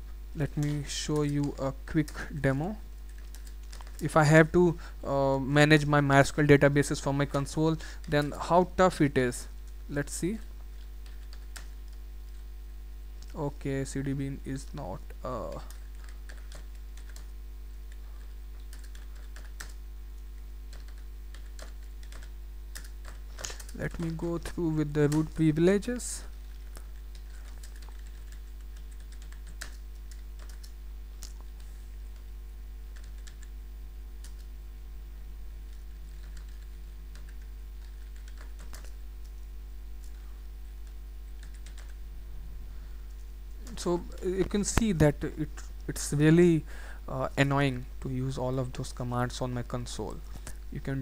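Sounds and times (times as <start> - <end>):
steady low hum: 0.0 - 51.0
keyboard typing: 0.4 - 2.3, 3.0 - 4.1, 9.6 - 12.4, 14.6 - 32.3, 32.9 - 33.5, 34.2 - 34.5, 35.6 - 40.2, 40.8 - 42.0
keyboard keys clicking: 26.6 - 31.4, 40.8 - 42.0.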